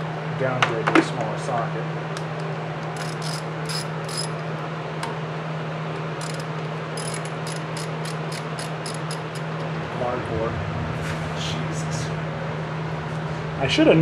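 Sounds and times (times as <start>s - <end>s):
steady low hum: 0.0s - 14.0s
socket ratchet clicking: 3.0s - 4.3s, 6.2s - 9.7s.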